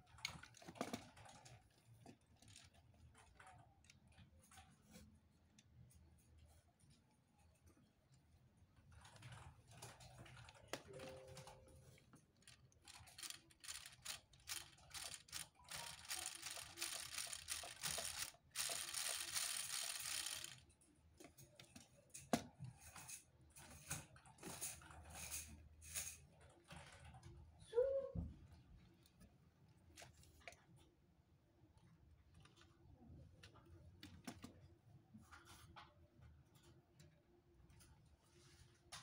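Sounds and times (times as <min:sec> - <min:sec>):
plastic gears clicking and rattling: 0:00.0 - 0:05.0, 0:08.8 - 0:27.2.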